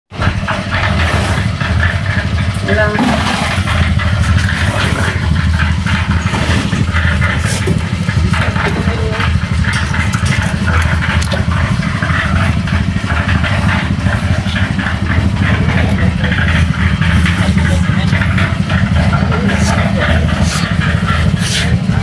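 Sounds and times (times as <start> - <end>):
small engine droning: 0.1 - 22.0.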